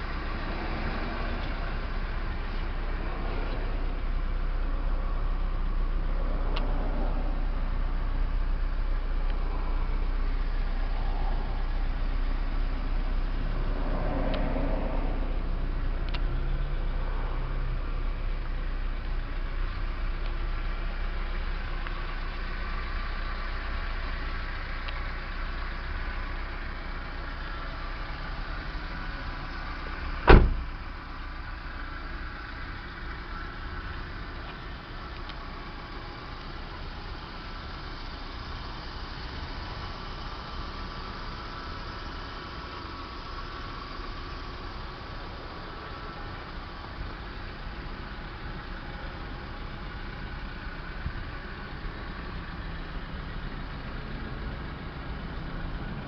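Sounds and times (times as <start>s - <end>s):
car engine idling: 0.0s - 56.0s
car door slamming: 30.0s - 30.8s.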